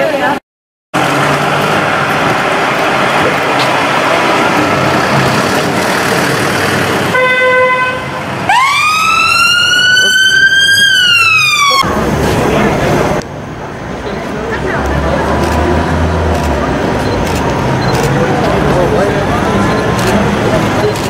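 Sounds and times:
horn-like tone: 7.2s - 8.2s
siren wail: 8.4s - 11.9s.

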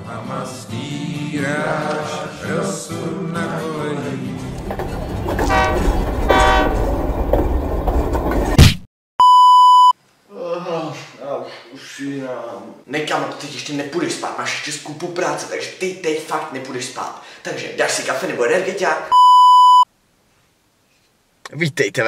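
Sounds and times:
background music: 0.0s - 5.7s
low train rumble: 4.3s - 8.6s
train horn blasts: 5.4s - 7.0s
censor beep: 9.2s - 10.0s, 19.1s - 19.9s.

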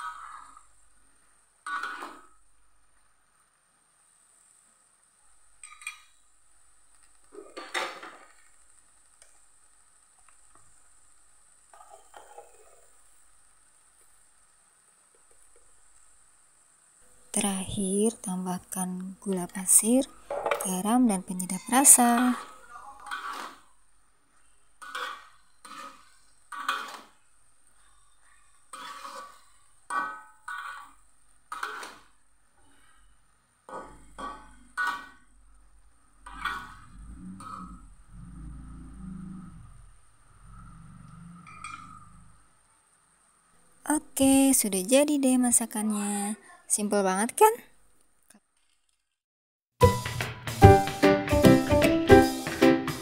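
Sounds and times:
spatula scraping metal wok: 1.6s - 2.3s, 20.7s - 23.8s, 24.4s - 33.0s, 33.7s - 35.3s, 36.2s - 37.9s.

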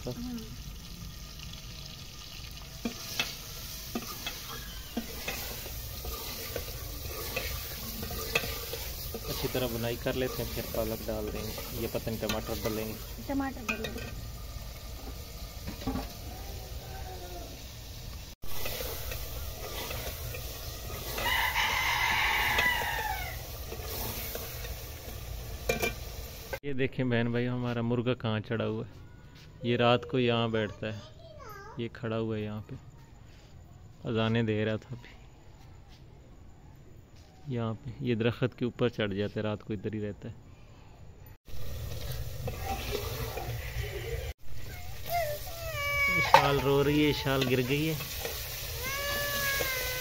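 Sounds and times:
food sizzling in hot oil: 0.0s - 26.6s, 41.4s - 50.0s
metal spoon scraping steel pot: 2.8s - 14.2s, 18.5s - 25.1s, 25.7s - 26.0s
rooster crowing: 21.0s - 23.6s.

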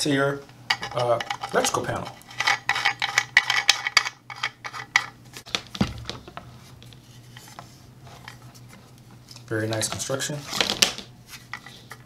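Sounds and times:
dull thump: 5.5s - 6.4s.

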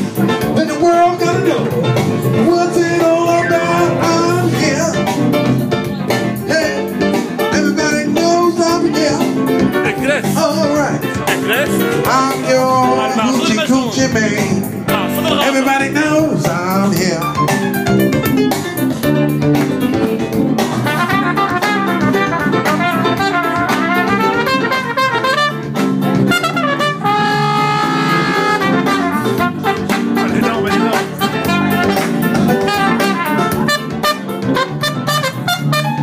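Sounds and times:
funky jazz band: 0.0s - 36.0s
trumpet playing: 20.8s - 36.0s.

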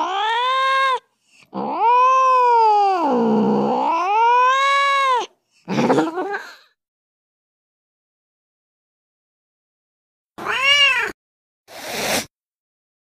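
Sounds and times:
cat yowling angrily: 0.0s - 5.3s, 10.4s - 11.2s.

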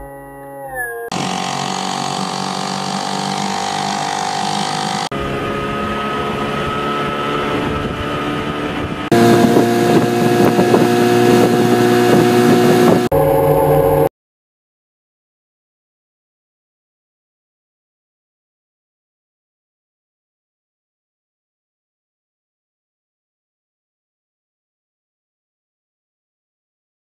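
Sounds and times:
outboard motors running: 1.1s - 14.1s
wind and water rushing: 6.2s - 13.1s.

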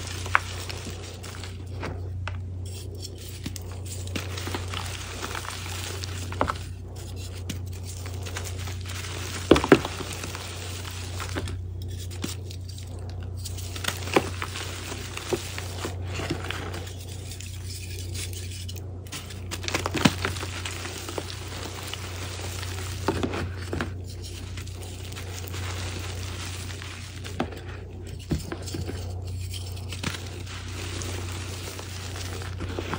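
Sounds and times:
chalk crunching and snapping: 0.0s - 32.9s
steady low hum: 0.0s - 32.9s.

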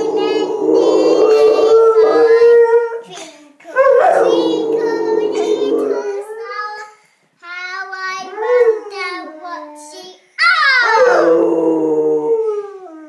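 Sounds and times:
dog howling: 0.0s - 3.0s, 3.8s - 6.6s, 10.4s - 13.0s
girl singing a lullaby: 0.0s - 10.4s.

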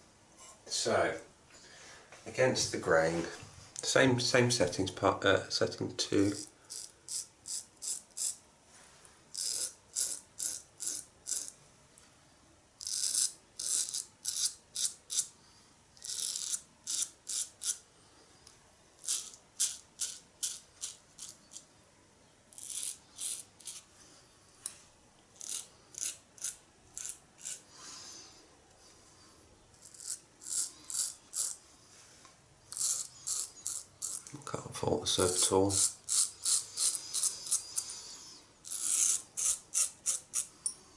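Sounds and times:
razor scraping stubble: 6.1s - 8.4s, 9.3s - 11.6s, 12.8s - 15.3s, 16.0s - 17.8s, 19.0s - 21.6s, 22.5s - 23.9s, 25.4s - 27.7s, 29.7s - 31.6s, 32.7s - 40.5s.

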